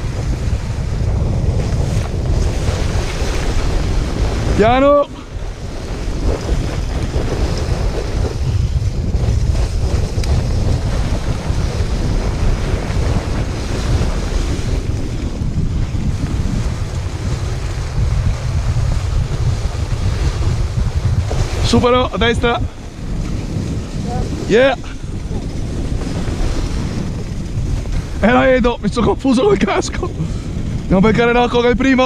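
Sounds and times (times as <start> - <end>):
sled runners hissing on snow: 0.0 - 30.8
wind buffeting microphone: 0.0 - 32.0.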